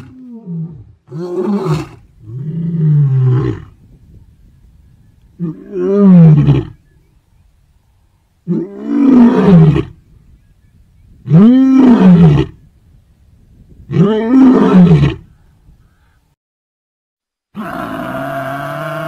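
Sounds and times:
lion roaring: 17.6s - 19.0s.

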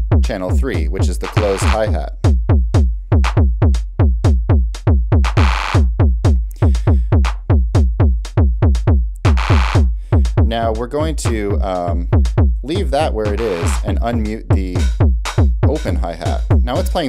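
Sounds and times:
analog kick drum: 0.0s - 17.0s
closed hi-hat: 0.0s - 17.0s
electronic claps trill: 1.2s - 2.0s, 3.2s - 3.5s, 4.3s - 6.6s, 9.2s - 17.0s.

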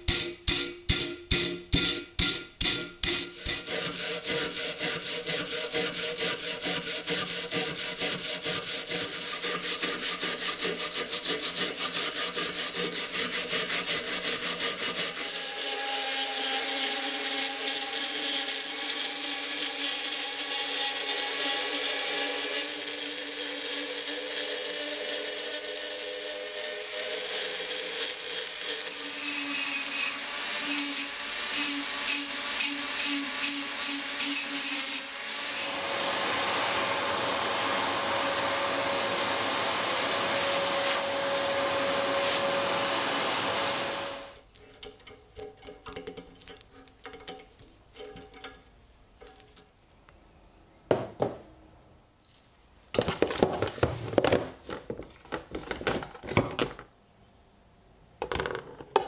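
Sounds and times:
rotary tool grinding rust off steel: 0.0s - 37.3s
vacuum cleaner hissing and whining: 35.0s - 44.4s.

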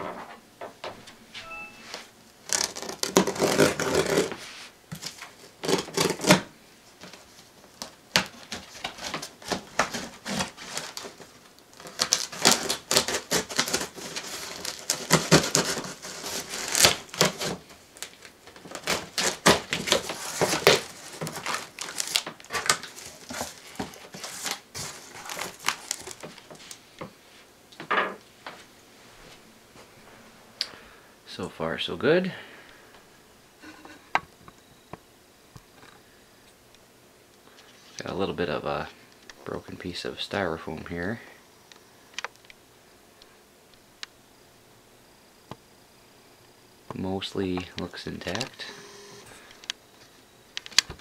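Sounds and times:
packing tape slit and torn: 2.4s - 4.4s, 5.0s - 7.2s, 7.8s - 26.8s
cardboard flaps scraping and rustling: 2.5s - 6.5s, 8.2s - 26.7s.

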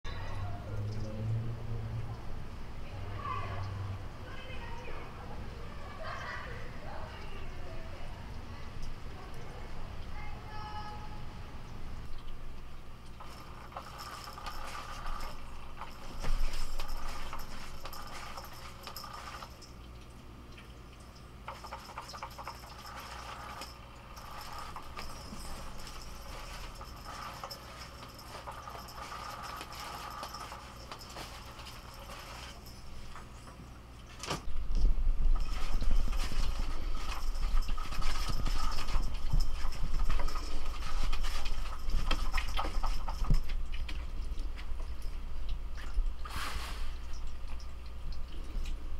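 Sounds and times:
cat toy whirring and rustling: 13.2s - 19.7s, 21.5s - 33.5s, 35.3s - 43.6s
collar bell jingling: 13.2s - 19.8s, 21.5s - 33.5s, 35.3s - 45.4s.

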